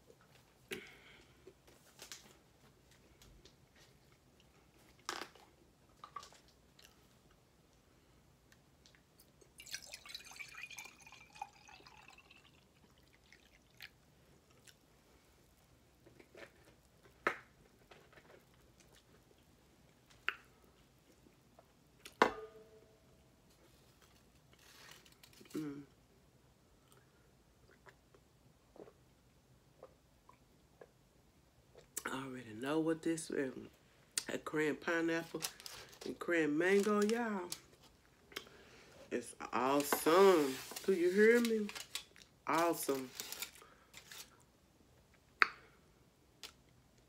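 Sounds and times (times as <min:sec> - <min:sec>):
soft chewing: 0:02.7 - 0:07.8, 0:12.8 - 0:22.2, 0:26.8 - 0:31.1.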